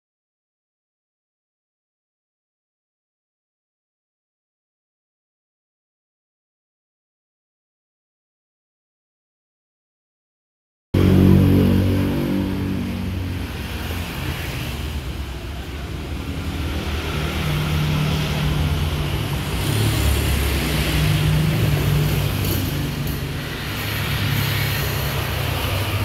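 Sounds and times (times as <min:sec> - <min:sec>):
car engines humming: 0:11.0 - 0:26.0
motorbike engines: 0:11.0 - 0:26.0
road noise: 0:11.0 - 0:26.0.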